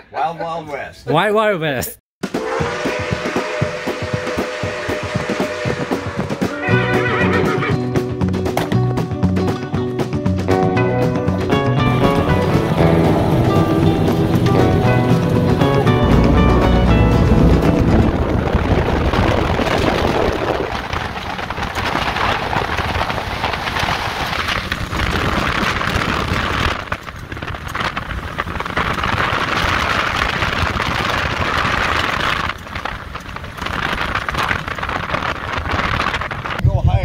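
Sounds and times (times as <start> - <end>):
wind rushing: 2.2 - 8.0, 11.4 - 37.0
tyres on gravel: 11.8 - 36.6
engine at high revs: 11.9 - 20.9.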